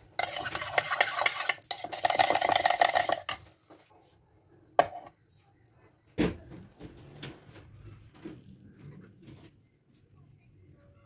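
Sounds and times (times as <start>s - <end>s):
spoon scraping steel bowl: 0.0s - 3.6s.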